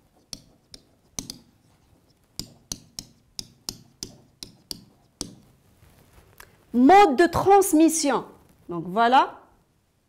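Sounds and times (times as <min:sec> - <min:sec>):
marker tapping on board: 0:00.2 - 0:01.7, 0:02.3 - 0:05.5.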